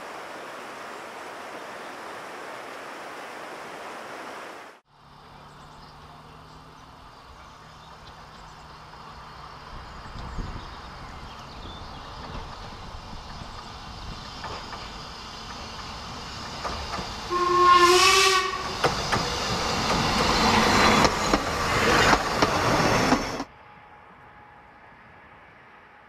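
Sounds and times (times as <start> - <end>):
steam exhaust chuffing and hissing: 12.2 - 23.5
steam locomotive whistle: 17.2 - 19.1.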